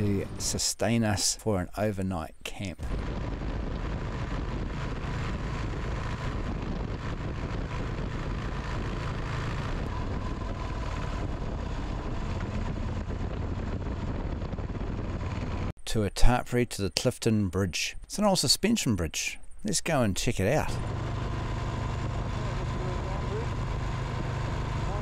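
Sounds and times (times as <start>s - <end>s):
motorcycle engine drone: 0.0s - 0.6s, 2.8s - 15.8s, 20.6s - 25.0s
wind noise on microphone: 2.8s - 15.8s.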